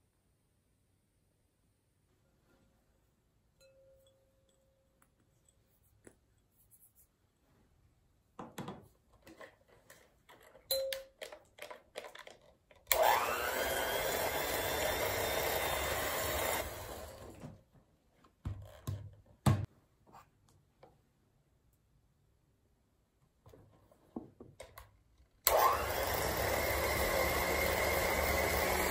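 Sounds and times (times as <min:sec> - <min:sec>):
handling clicks and knocks: 0:08.4 - 0:12.9
electric hand mixer whining: 0:12.9 - 0:17.4, 0:25.5 - 0:28.9.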